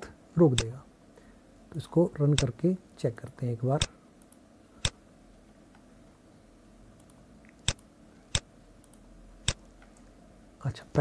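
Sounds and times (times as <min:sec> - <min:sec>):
computer mouse clicks: 0:03.8 - 0:05.0, 0:07.0 - 0:10.1.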